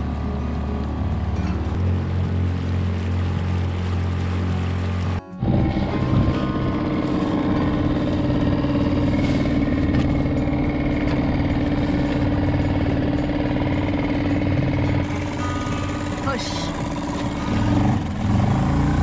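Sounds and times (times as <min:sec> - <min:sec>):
engine idling: 0:00.0 - 0:19.0.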